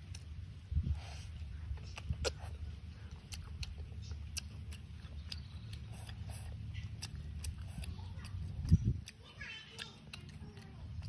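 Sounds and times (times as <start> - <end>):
chewing honeycomb: 0.0 - 11.0
steady low hum: 0.0 - 11.0
sharp mouth clicks: 1.7 - 11.0.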